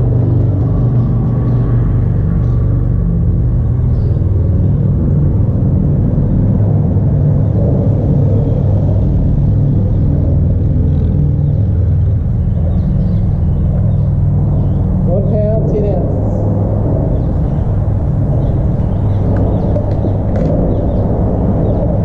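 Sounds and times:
road traffic rumble overhead: 0.0 - 22.0.

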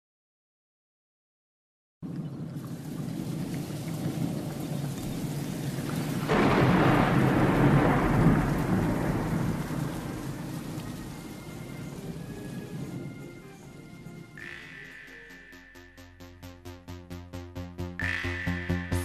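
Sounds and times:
steady rain: 2.4 - 14.4
thunder rumbling: 2.8 - 15.2.

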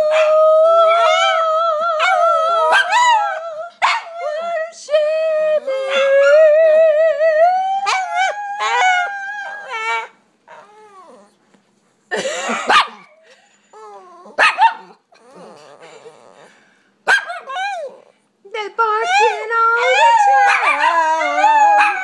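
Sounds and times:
dog howling: 0.0 - 4.7, 7.4 - 11.4, 19.0 - 22.0
dog barking: 3.8 - 4.1, 12.7 - 13.1, 14.4 - 15.0, 17.1 - 17.5.

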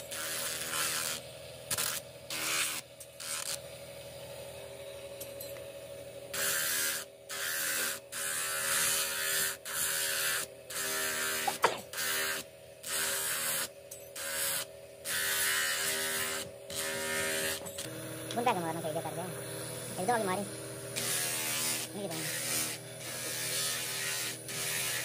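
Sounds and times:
electric motor running: 6.3 - 25.0
grinding disc on wood: 10.2 - 13.6, 14.3 - 25.0
sharp knock: 11.5 - 11.9.

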